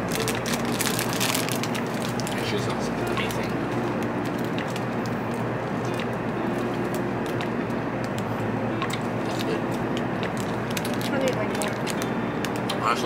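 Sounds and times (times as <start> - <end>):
plastic bag crinkling: 0.0 - 5.2, 10.2 - 12.6
train cabin noise: 0.0 - 13.0.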